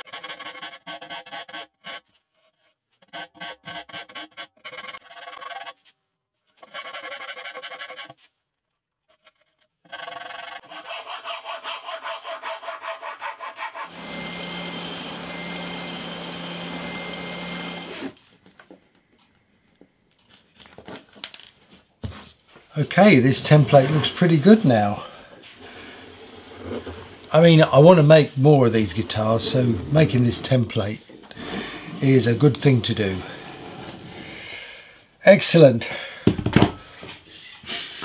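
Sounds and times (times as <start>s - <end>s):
rasp filing wood: 0.0s - 5.8s, 6.6s - 8.2s, 9.1s - 18.2s, 23.0s - 34.5s.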